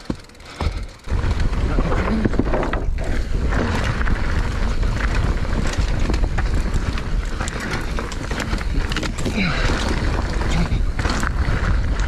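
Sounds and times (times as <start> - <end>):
bike clicks and knocks: 0.0 - 12.0
bike tyres on dirt: 0.0 - 12.0
wind rumbling on microphone: 0.0 - 12.0.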